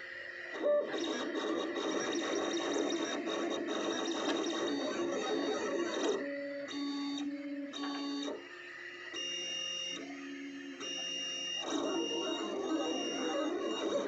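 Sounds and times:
stepper motors whining: 9.2 - 14.0.

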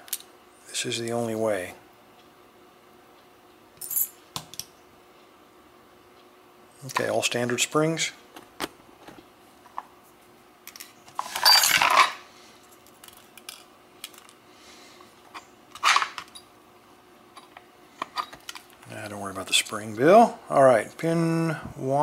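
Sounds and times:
scraping rattle of lock parts: 10.7 - 12.2, 15.8 - 16.4.

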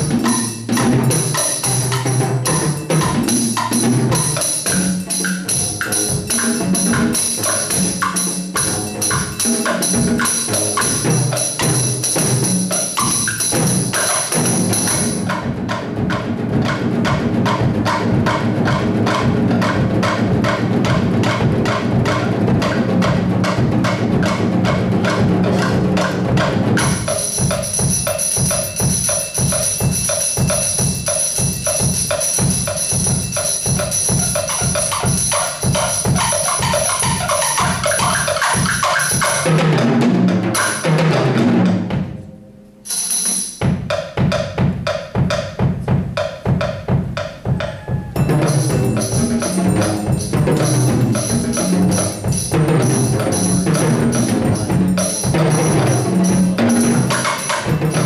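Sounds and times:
drums playing a fast groove: 0.0 - 42.3, 42.9 - 58.0
high shimmer: 48.1 - 58.0.

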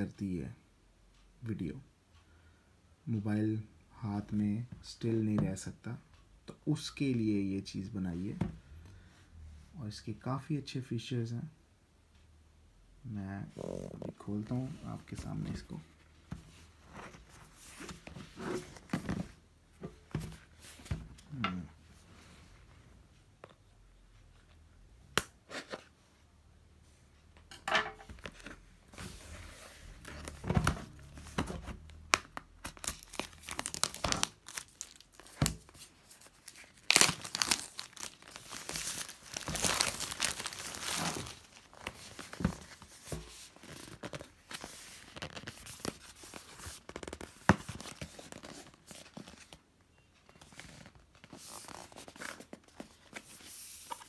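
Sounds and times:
packaging tearing and crinkling: 32.0 - 42.4.

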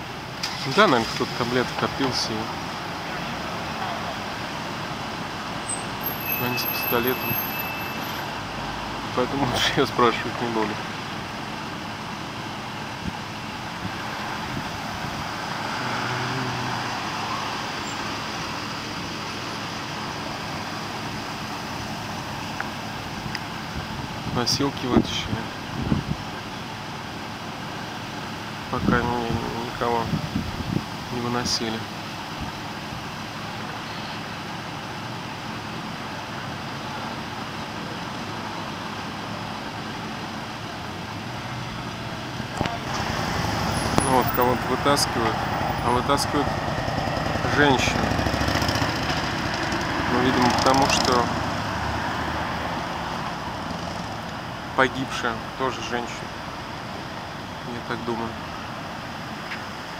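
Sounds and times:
street traffic: 0.0 - 59.9
vehicle driving past: 14.1 - 18.0, 41.9 - 54.2.

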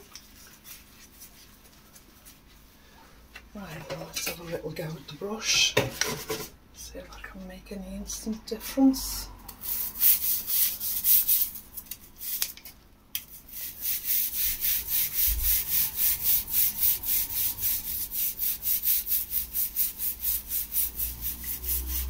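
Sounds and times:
brush scrubbing tile grout: 0.1 - 2.4, 9.6 - 12.5, 13.3 - 22.0.

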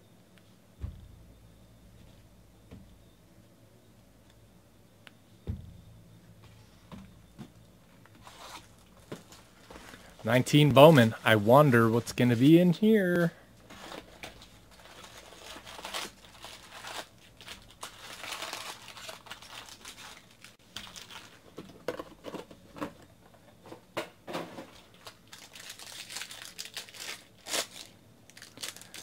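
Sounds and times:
foil packs crinkling: 8.2 - 21.6, 24.4 - 29.0
wrapper tearing: 13.7 - 21.5, 24.7 - 29.0.

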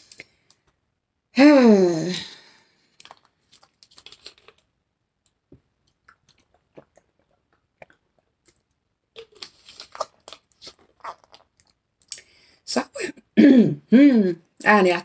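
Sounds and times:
plastic bottle crackling: 3.0 - 4.7
swallowing gulps: 5.8 - 10.2.

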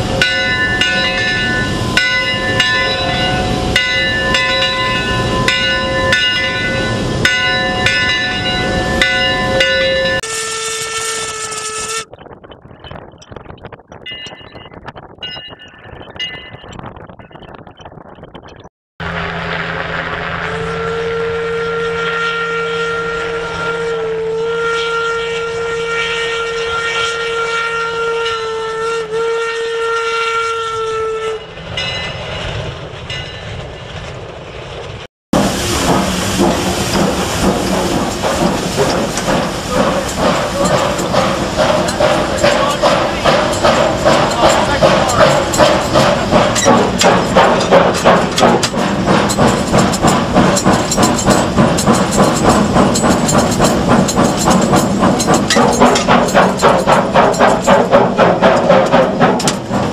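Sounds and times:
steam locomotive exhaust chuffing: 0.0 - 12.1, 19.0 - 59.9
steam whistle blast: 9.4 - 12.1, 20.4 - 31.5.

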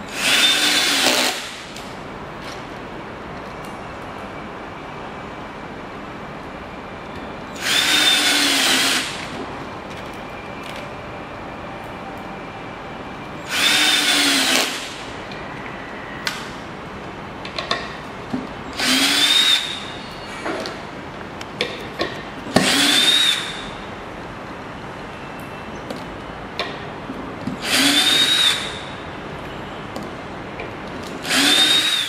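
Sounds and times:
power drill driving screws: 0.1 - 1.5, 7.6 - 9.2, 13.5 - 14.9, 18.8 - 19.8, 22.6 - 23.6, 27.6 - 28.8, 31.2 - 32.0.

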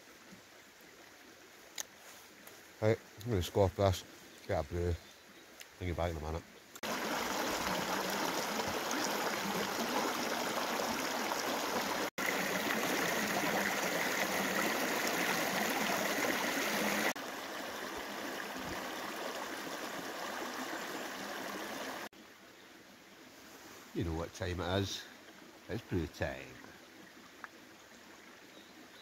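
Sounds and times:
river splashing over rocks: 6.8 - 22.0.

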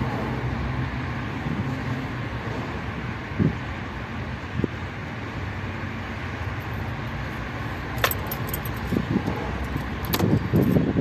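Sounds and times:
steady background noise: 0.0 - 11.0
keys jangling: 7.9 - 10.8.

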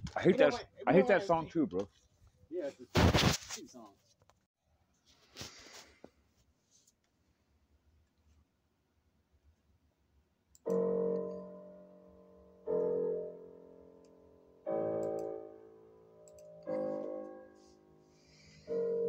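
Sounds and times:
piano notes: 10.7 - 19.0.

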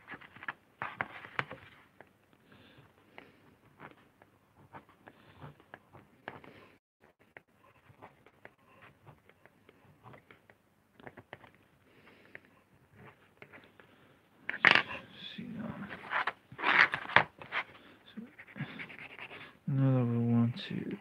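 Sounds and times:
pencil scratching on lino block: 3.2 - 11.5, 18.3 - 19.6
board scraping and rustling: 15.9 - 17.8.

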